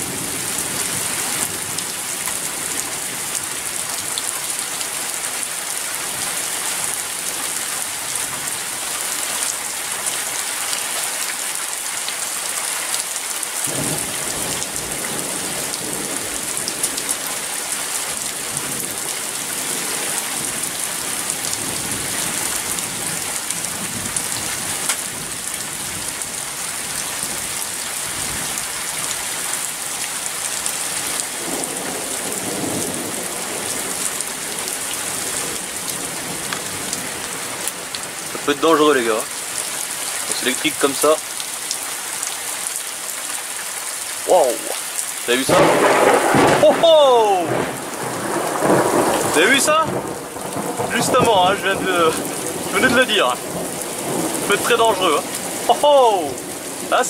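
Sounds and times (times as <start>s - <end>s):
heavy rain hissing: 0.0s - 57.0s
thunder rumbling: 45.4s - 55.7s.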